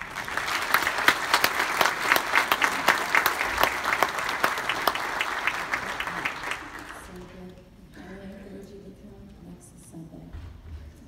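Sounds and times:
crowd applauding: 0.0 - 7.3.

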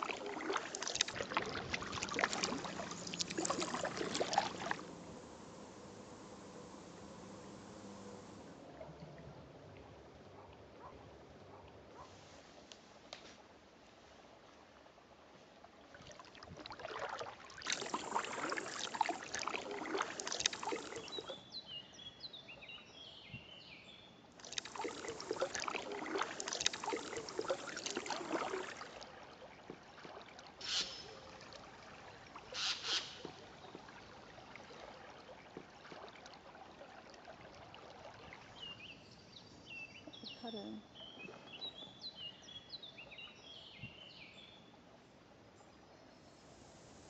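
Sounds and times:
paddle splashing in water: 0.0 - 13.5, 15.4 - 21.5, 24.4 - 39.0.

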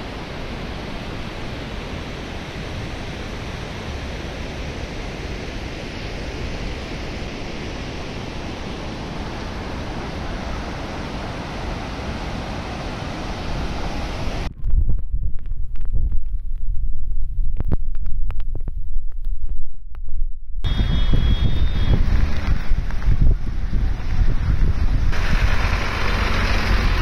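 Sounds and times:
rushing water: 0.0 - 14.5, 21.3 - 27.0.

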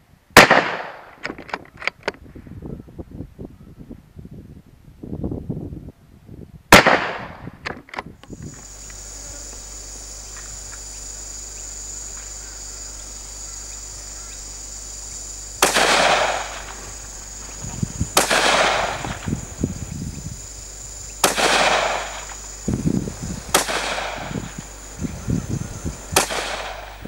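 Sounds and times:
rifle shots: 0.4 - 1.2, 6.7 - 7.4, 15.6 - 17.2, 18.0 - 19.6, 21.2 - 22.4, 23.5 - 24.6, 26.1 - 27.0
steady hiss: 8.2 - 27.0
high thin whine: 8.3 - 27.0.

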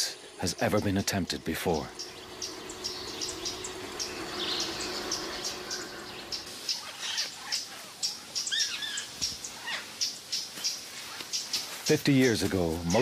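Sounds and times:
birds chirping: 0.0 - 13.0
steady low tone: 0.1 - 6.7
two-note descending bird call: 2.0 - 7.2.

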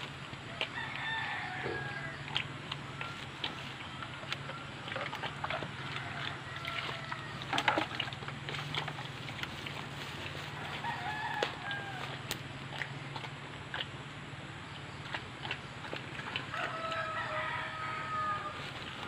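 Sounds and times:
pig chewing wet feed: 0.0 - 19.0
rooster crowing: 0.6 - 2.4, 5.7 - 7.7, 10.4 - 12.3, 16.4 - 18.7.

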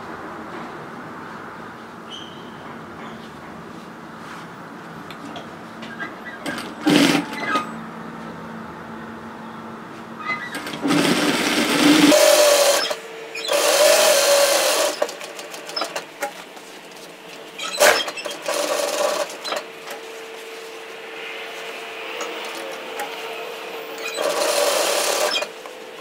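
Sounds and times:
sewing machine stitching: 6.4 - 7.8, 10.4 - 16.1, 17.6 - 20.0, 22.2 - 23.2, 24.0 - 25.6.

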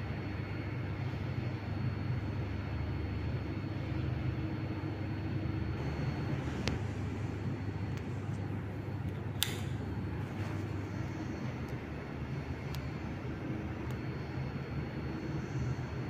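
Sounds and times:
ceiling fan humming: 0.0 - 16.0
sharp clicks: 9.4 - 9.8.

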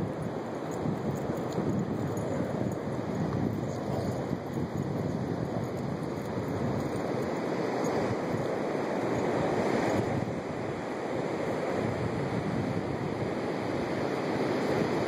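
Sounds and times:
wind on microphone: 0.0 - 15.0
ocean surf: 5.2 - 15.0.

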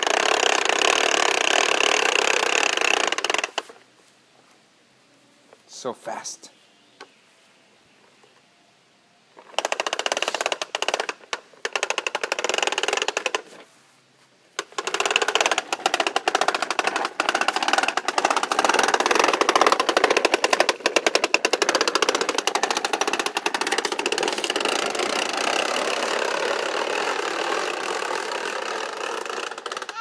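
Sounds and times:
toy lawnmower clicking: 0.0 - 3.8, 9.4 - 13.7, 14.6 - 30.0.

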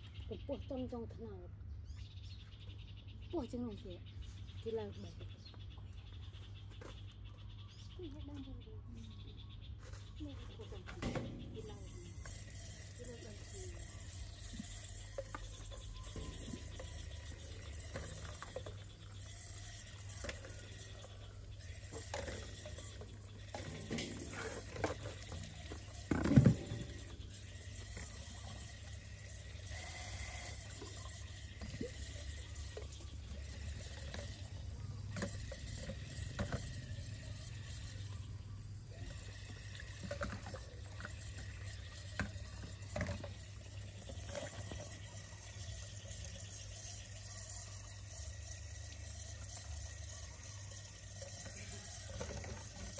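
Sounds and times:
water running into metal basin: 11.0 - 52.9.

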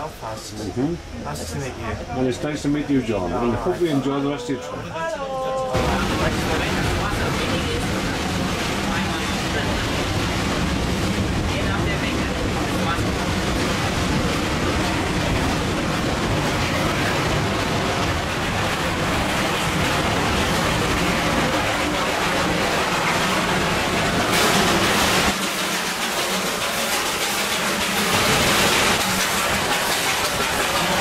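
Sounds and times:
train wheels rumbling on track: 5.8 - 31.0.

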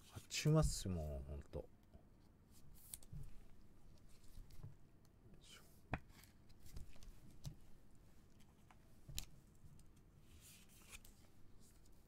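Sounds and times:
soft rustle: 2.5 - 4.8, 5.6 - 12.0.

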